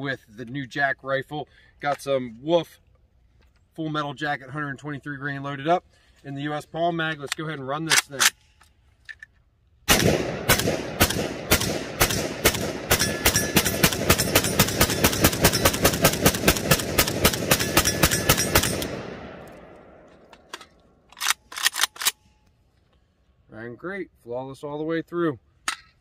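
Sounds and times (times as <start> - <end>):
rifle handling clicks: 7.0 - 9.5, 17.0 - 23.0
rifle shots with echo: 9.9 - 20.2.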